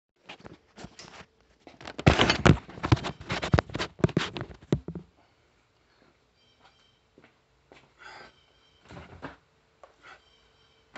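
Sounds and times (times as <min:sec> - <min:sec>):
phone handling knocks and scrapes: 0:01.9 - 0:05.1.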